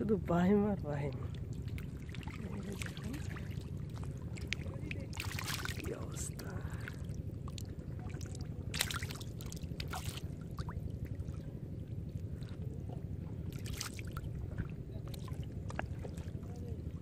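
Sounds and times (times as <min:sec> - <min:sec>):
low rumble: 0:00.0 - 0:17.0
water and mud sloshing: 0:00.0 - 0:17.0
short wet splashes: 0:01.3 - 0:06.0, 0:06.8 - 0:10.8, 0:13.5 - 0:16.3.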